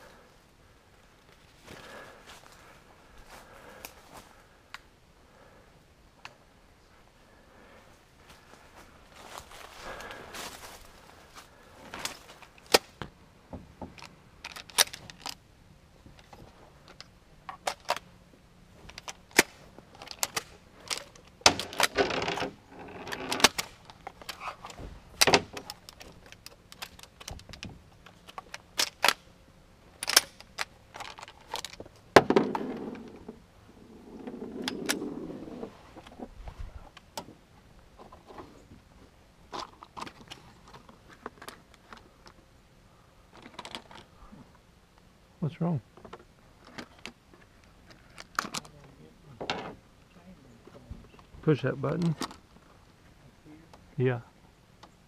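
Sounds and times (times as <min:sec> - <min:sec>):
rustling: 0:16.0 - 0:44.7.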